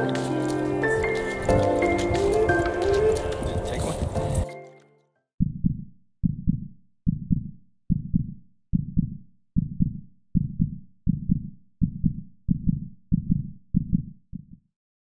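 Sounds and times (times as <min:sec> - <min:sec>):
heartbeat thumps: 0:05.4 - 0:14.6.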